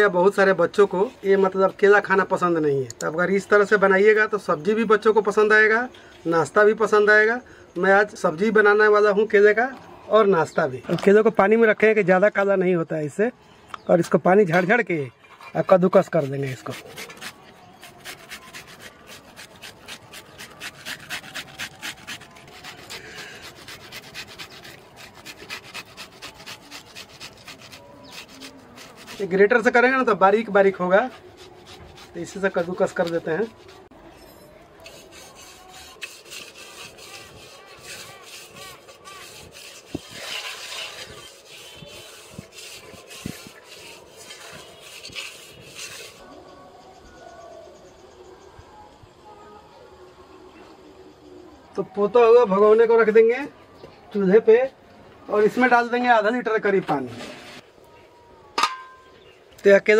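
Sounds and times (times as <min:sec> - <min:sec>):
banana grating on hand grater: 0:16.0 - 0:30.0, 0:30.7 - 0:33.9, 0:34.8 - 0:46.2.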